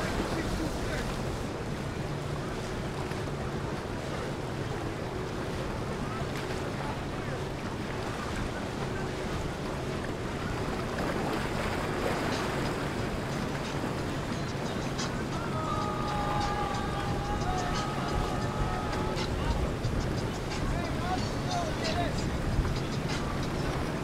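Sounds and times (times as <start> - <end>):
low boat engine hum: 0.0 - 24.0
waves and boat wake: 0.0 - 24.0
wind buffeting microphone: 0.0 - 24.0.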